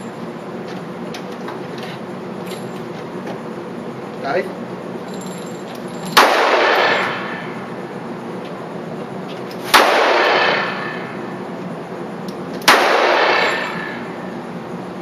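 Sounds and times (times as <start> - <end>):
revolver shots with echo: 6.2 - 7.6, 9.6 - 11.1, 12.6 - 14.1.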